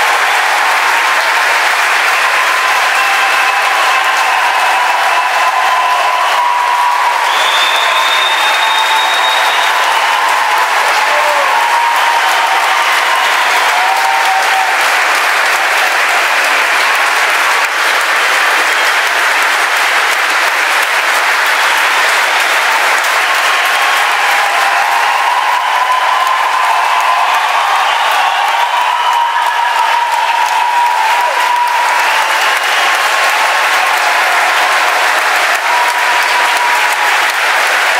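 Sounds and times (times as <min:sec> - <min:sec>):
large audience applauding: 0:00.0 - 0:37.9
faint voices or whistles: 0:07.2 - 0:10.1.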